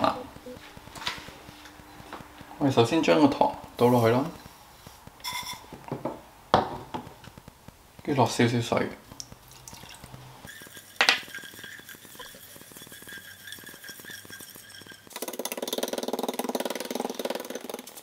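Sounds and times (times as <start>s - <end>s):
spatula scraping saucepan: 10.4s - 15.1s.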